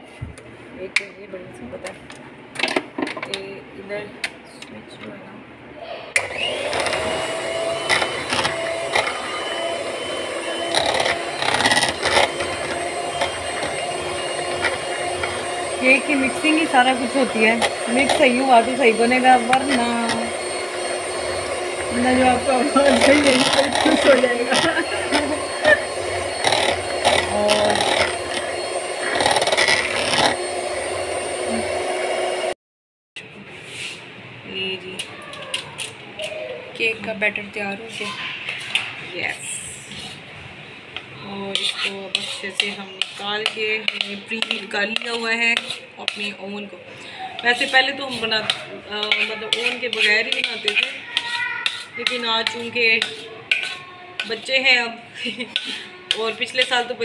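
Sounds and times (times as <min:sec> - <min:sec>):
electric hand mixer running: 0:06.2 - 0:32.6, 0:41.5 - 0:46.4
beaters clattering in bowl: 0:47.4 - 0:54.7.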